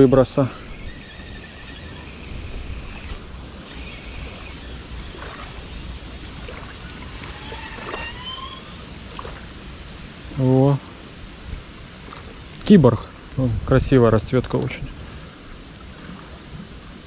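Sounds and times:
wind buffeting microphone: 0:00.0 - 0:10.5, 0:11.3 - 0:17.0
small waves lapping: 0:00.0 - 0:13.5, 0:14.6 - 0:17.0
faint rising whistle: 0:06.8 - 0:08.9, 0:15.0 - 0:15.7.

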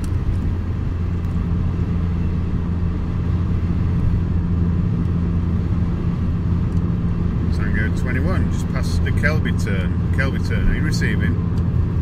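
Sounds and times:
car cabin road and engine noise: 0:00.0 - 0:12.0
constant low hum: 0:00.0 - 0:12.0.

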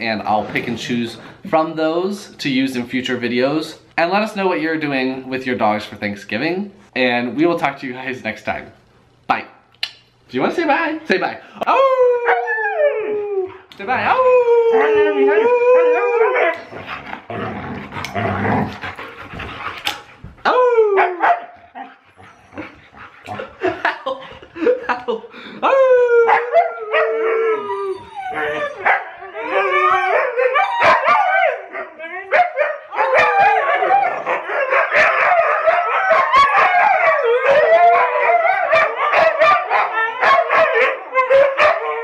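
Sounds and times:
dog howling call: 0:14.1 - 0:16.6, 0:25.7 - 0:42.0
dogs growling: 0:16.2 - 0:20.4, 0:21.6 - 0:24.5
dogs yipping and barking: 0:21.0 - 0:23.0, 0:27.7 - 0:42.0.

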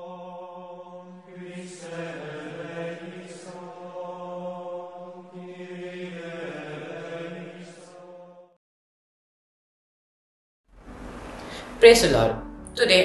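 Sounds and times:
slow vocal chant: 0:00.0 - 0:08.6.

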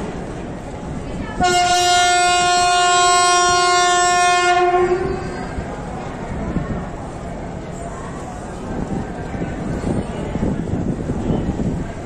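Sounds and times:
train horn blast: 0:01.4 - 0:05.5.

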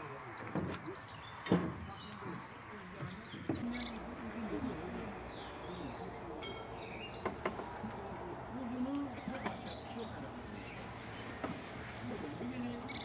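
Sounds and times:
bird chirping: 0:00.0 - 0:13.0
distant voices: 0:00.0 - 0:13.0
sharp wooden knocks: 0:00.4 - 0:02.4, 0:07.2 - 0:08.0, 0:11.4 - 0:11.9.

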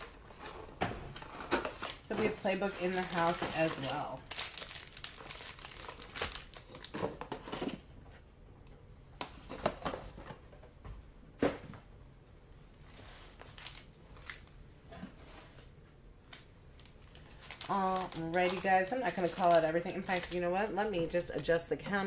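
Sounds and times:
foil packs crinkling: 0:00.0 - 0:07.3, 0:13.0 - 0:14.6, 0:16.8 - 0:21.2.

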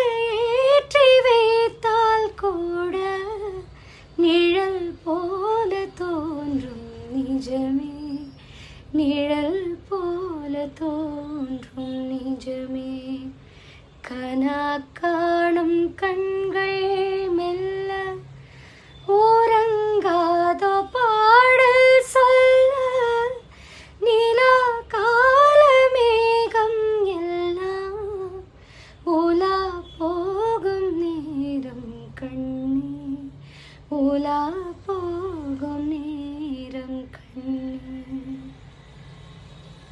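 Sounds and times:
woman singing unaccompanied: 0:00.0 - 0:13.4, 0:14.0 - 0:38.7.

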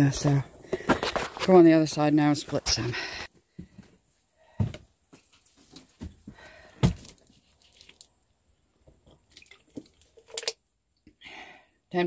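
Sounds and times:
firewood knocks and clunks: 0:05.7 - 0:07.3.

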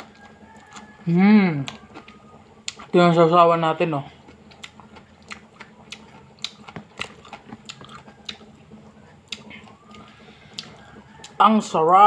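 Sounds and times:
person chewing food: 0:00.0 - 0:03.0, 0:04.0 - 0:11.4.

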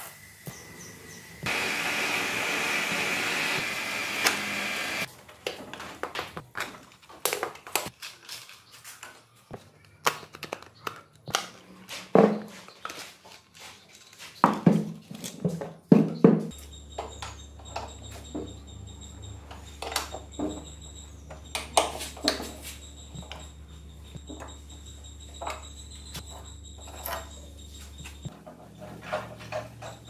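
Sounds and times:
metal tools clinking on workbench: 0:25.3 - 0:27.8.

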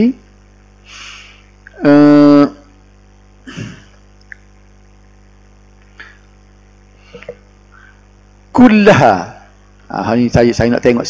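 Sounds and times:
faint breath: 0:00.8 - 0:01.5, 0:07.0 - 0:08.1.

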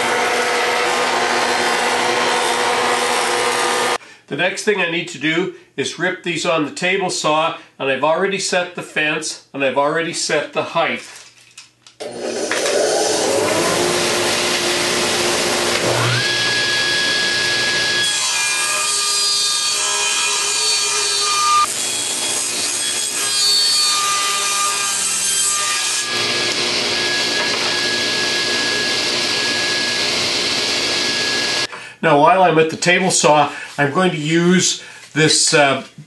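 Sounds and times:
table saw motor: 0:00.0 - 0:04.0, 0:12.0 - 0:31.7
saw blade ripping board: 0:12.0 - 0:14.6.

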